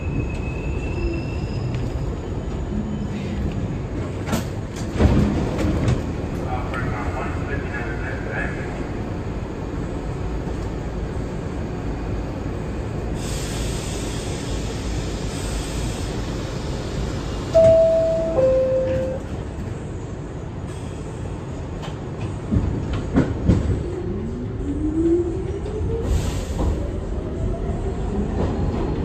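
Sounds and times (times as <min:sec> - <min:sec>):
subway car rumble: 0:00.0 - 0:29.0
two-note door chime: 0:17.6 - 0:19.2.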